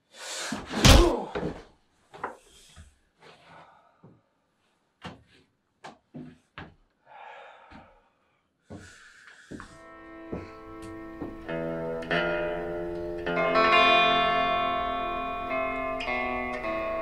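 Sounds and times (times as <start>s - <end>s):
heavy thud of a blow: 0.8s - 1.6s.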